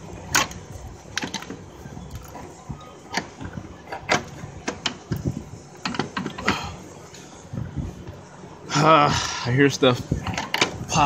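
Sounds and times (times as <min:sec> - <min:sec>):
clicks and knocks on car parts: 0:03.1 - 0:06.7, 0:10.2 - 0:10.8.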